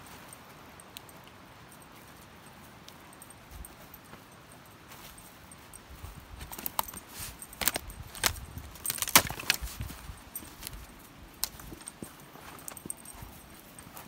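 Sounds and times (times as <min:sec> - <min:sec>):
footsteps crunching through dry twigs: 0:03.2 - 0:14.0.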